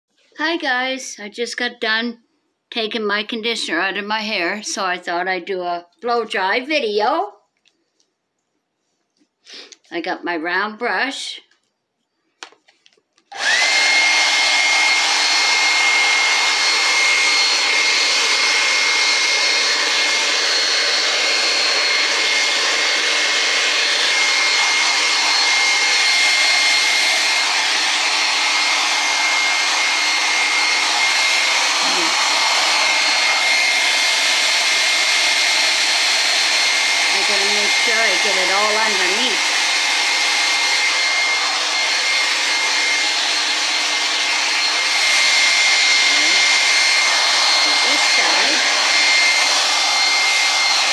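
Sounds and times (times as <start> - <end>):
hair dryer motor whine: 13.3 - 50.9.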